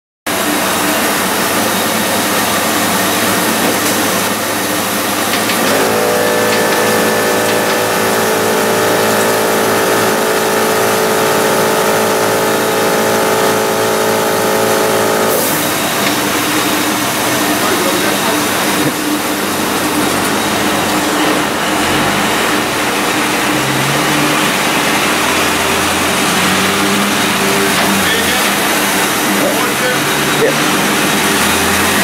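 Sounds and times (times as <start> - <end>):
steady whine: 0.3 - 32.0
car engine idling: 0.4 - 32.0.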